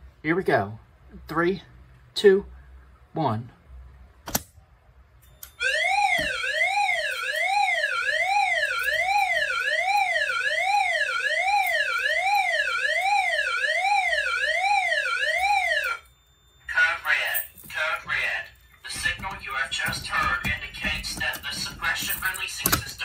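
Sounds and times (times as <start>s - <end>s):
sweeping alarm tone: 5.5s - 17.5s, 18.1s - 23.0s.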